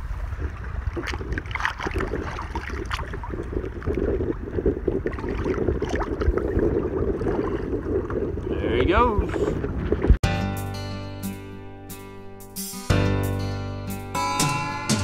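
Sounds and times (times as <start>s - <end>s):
water lapping against kayak hull: 0.0s - 10.2s
water splashes: 0.0s - 10.2s
wind buffeting microphone: 0.0s - 10.2s.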